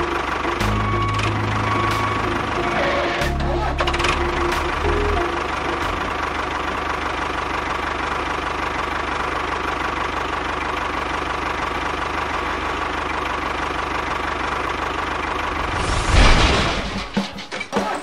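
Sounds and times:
model tractor engine knocking: 0:05.4 - 0:15.4.

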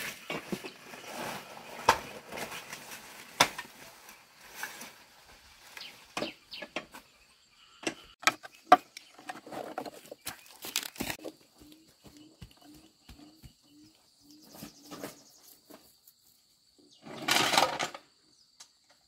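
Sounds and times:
dry leaves rustling and crackling: 0:00.0 - 0:06.3.

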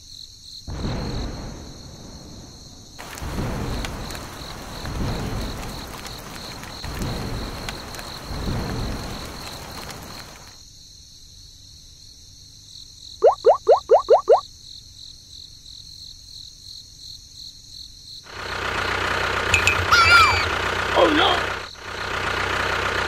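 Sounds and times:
crickets chirping: 0:00.0 - 0:18.9
rolling thunder: 0:00.7 - 0:10.5
thunderclap: 0:00.7 - 0:10.5
heavy rain: 0:03.0 - 0:10.6, 0:18.7 - 0:23.0.

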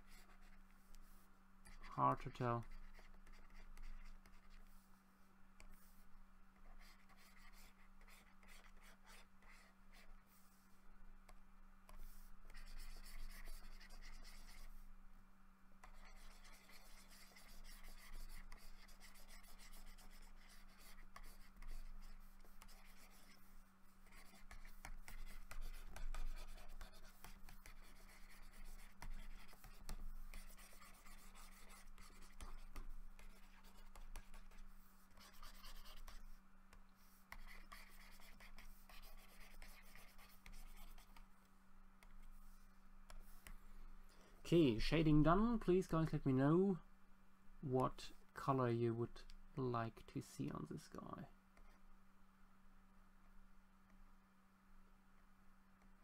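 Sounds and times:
stylus scratching on tablet: 0:00.0 - 0:04.9, 0:05.6 - 0:06.0, 0:06.6 - 0:10.6, 0:11.9 - 0:14.8, 0:15.8 - 0:41.3, 0:42.0 - 0:43.6
steady low hum: 0:00.0 - 0:56.0.

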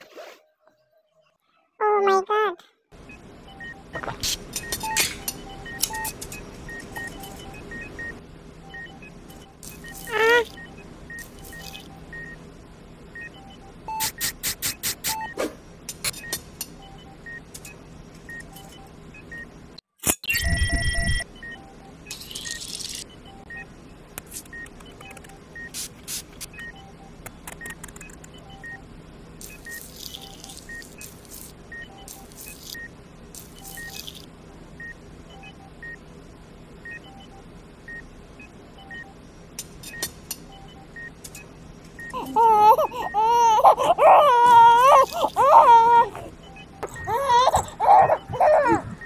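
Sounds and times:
two-tone electronic beeps: 0:04.6 - 0:12.4, 0:20.2 - 0:23.7, 0:26.5 - 0:34.1, 0:36.9 - 0:39.2
wavering wailing cry: 0:42.2 - 0:49.0.

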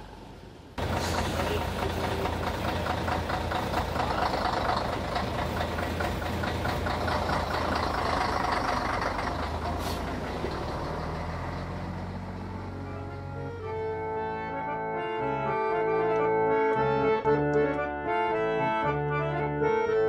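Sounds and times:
diesel truck engine idling: 0:00.0 - 0:19.8.

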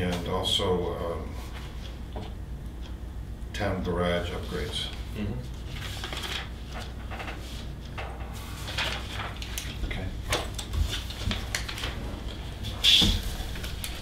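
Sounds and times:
low room hum: 0:00.0 - 0:14.0
papers rustling: 0:04.3 - 0:14.0.

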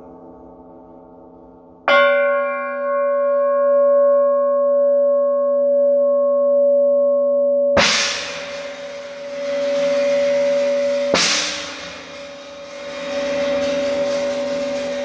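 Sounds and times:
cymbal crashes: 0:07.8 - 0:15.0.

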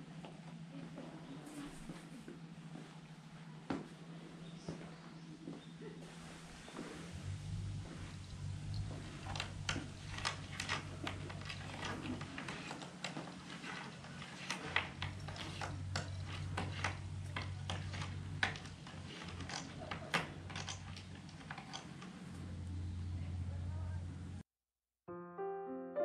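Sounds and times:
cat claws scratching wood: 0:07.2 - 0:22.8.

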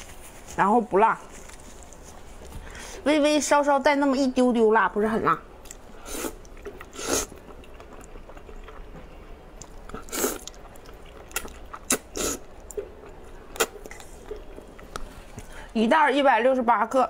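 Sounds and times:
person slurping noodles: 0:06.0 - 0:07.4, 0:10.0 - 0:10.6, 0:11.9 - 0:12.5.

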